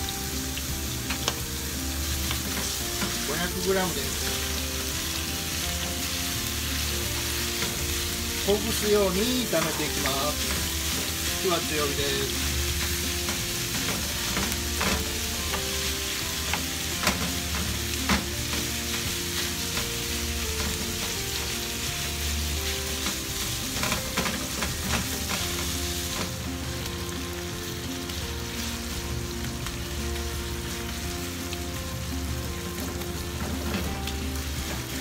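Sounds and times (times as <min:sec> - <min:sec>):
meat sizzling in a frying pan: 0:00.0 - 0:35.0
wooden spatula scraping a pan: 0:06.8 - 0:26.4.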